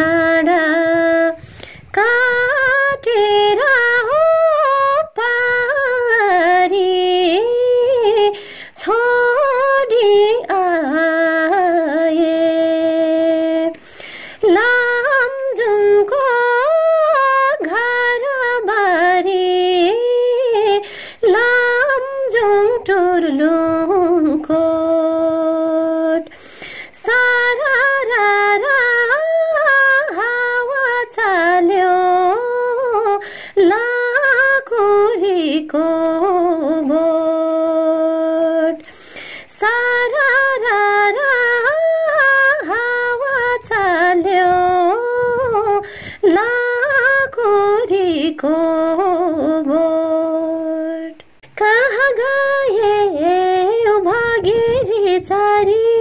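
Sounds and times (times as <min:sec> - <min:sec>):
woman singing folk song: 0:00.0 - 0:56.0.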